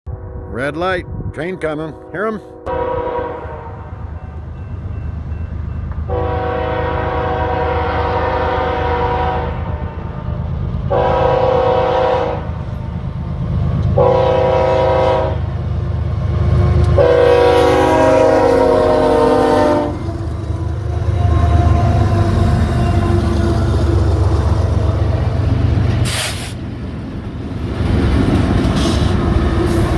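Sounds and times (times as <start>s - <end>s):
locomotive air horn blasts: 2.0s - 4.1s, 6.1s - 10.3s, 10.9s - 12.5s, 14.0s - 15.5s, 16.6s - 23.8s
locomotive rumble: 2.0s - 29.9s.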